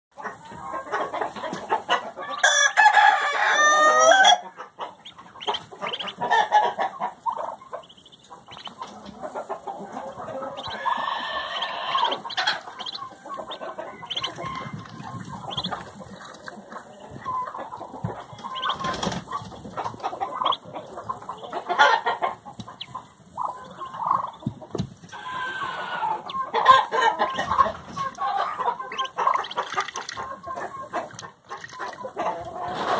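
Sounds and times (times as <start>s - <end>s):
duckling splashing in water: 4.6s - 20.7s, 25.1s - 32.2s
soft bird calls: 4.8s - 32.4s.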